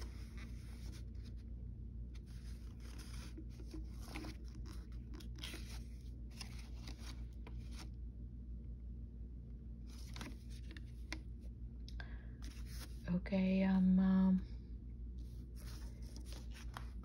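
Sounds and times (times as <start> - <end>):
low steady hum: 0.0 - 17.0
paper rustling: 2.2 - 7.9, 9.9 - 11.2, 12.4 - 13.0, 15.2 - 17.0.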